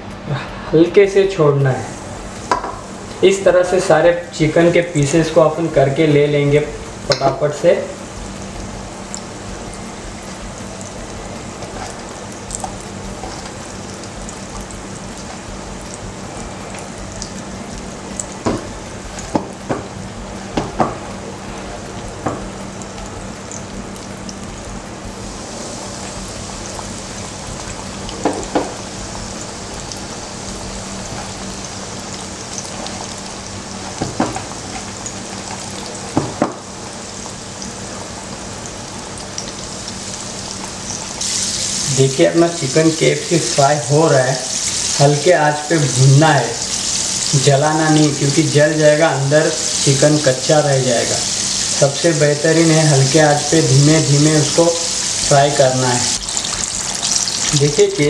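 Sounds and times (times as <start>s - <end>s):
chicken deep-frying in oil: 0.3s - 58.0s.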